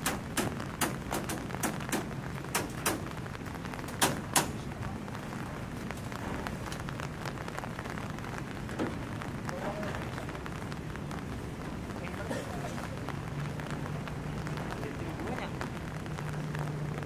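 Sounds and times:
construction knocks on rebar and timber: 0.0 - 3.1, 4.0 - 4.6.

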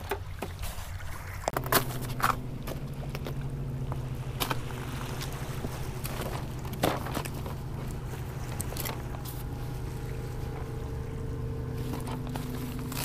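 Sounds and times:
low engine hum: 0.0 - 13.0
fishing gear clattering on rocks: 6.0 - 9.3.

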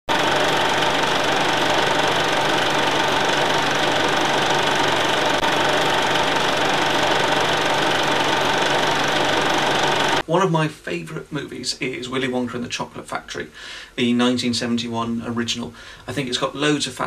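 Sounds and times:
machine rattling and humming: 0.1 - 10.2.

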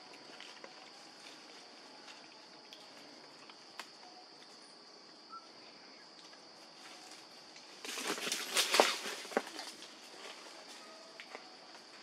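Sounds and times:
insects droning: 0.0 - 12.0
rustling in dry leaves: 6.7 - 11.0.

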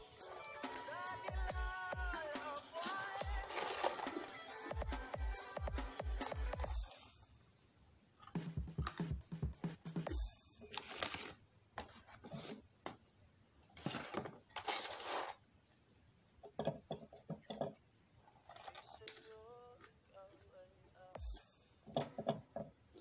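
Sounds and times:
paper carton rustling: 2.8 - 4.4, 10.7 - 12.7, 13.8 - 15.4, 18.4 - 19.3
chewing french fries: 18.2 - 21.2.

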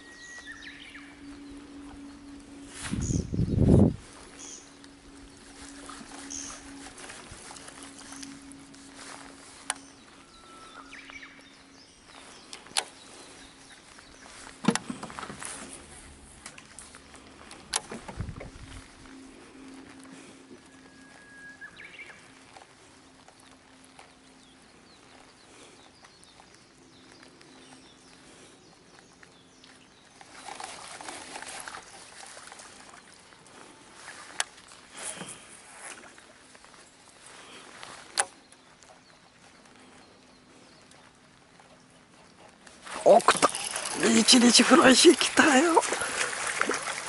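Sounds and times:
faint birdsong: 0.0 - 47.0
low steady hum: 0.0 - 47.0
lure splashing on water: 42.8 - 47.0.

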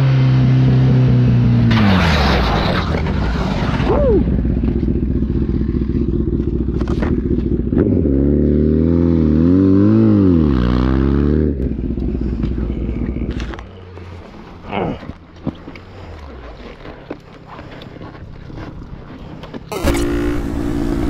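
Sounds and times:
rider scraping across asphalt: 1.7 - 3.9, 4.5 - 8.8, 11.7 - 21.0
motorcycle engine running: 3.9 - 21.0.

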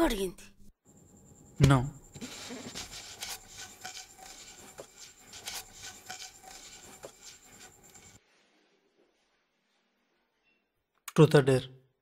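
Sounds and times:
scratchy rubbing with clicks: 2.1 - 8.2.

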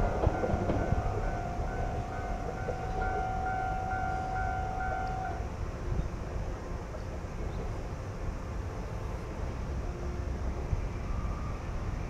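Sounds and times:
level-crossing warning bell: 0.0 - 5.7
faint steady tone: 0.0 - 12.0
train running: 0.0 - 12.0.

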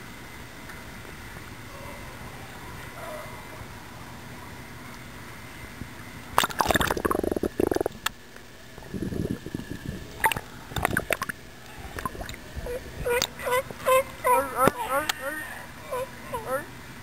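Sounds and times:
seawater sloshing and bubbling: 6.3 - 8.1, 10.2 - 12.4.

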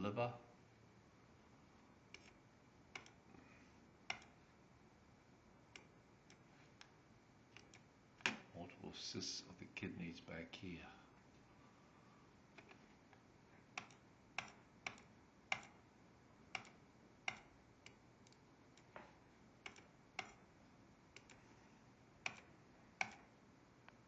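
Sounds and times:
computer mouse clicks: 2.1 - 3.2, 4.1 - 4.4, 5.7 - 6.9, 7.5 - 8.4, 12.6 - 15.8, 16.5 - 19.0, 19.6 - 20.5, 21.1 - 21.4, 22.2 - 23.3.

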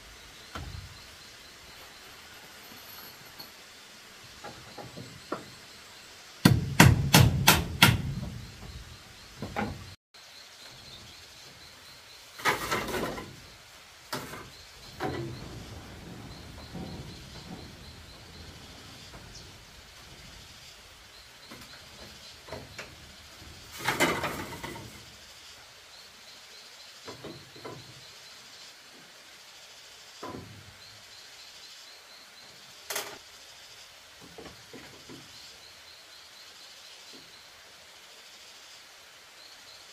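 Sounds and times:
hammer blows on bamboo: 6.4 - 10.0
rustling scrapes: 14.2 - 25.1.

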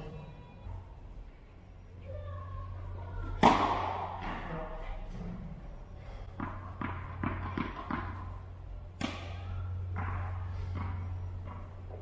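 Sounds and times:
tennis racket striking ball: 3.4 - 4.5, 6.4 - 8.3, 9.0 - 11.7.

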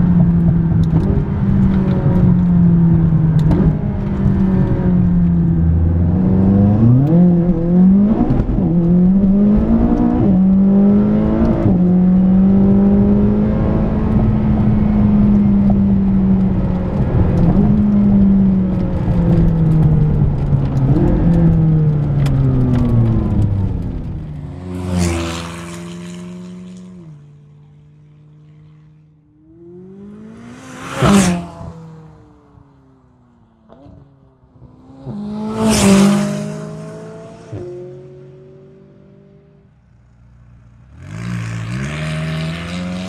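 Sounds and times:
car passing loudly: 24.4 - 32.4, 34.7 - 38.4.

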